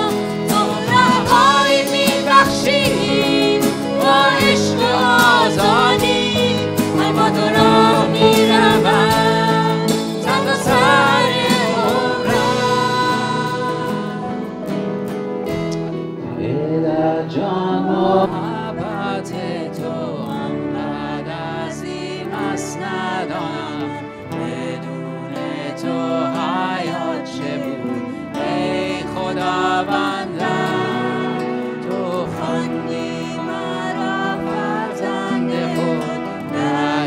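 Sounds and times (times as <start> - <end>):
voices singing together: 0.0 - 14.9, 16.4 - 37.0
strummed acoustic guitars: 0.0 - 16.6.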